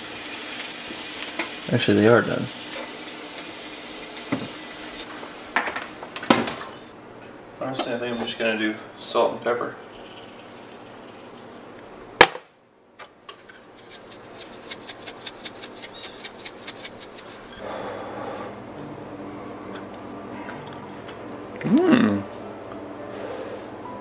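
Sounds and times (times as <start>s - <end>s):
pepper grinder cracking pepper: 13.7s - 17.5s.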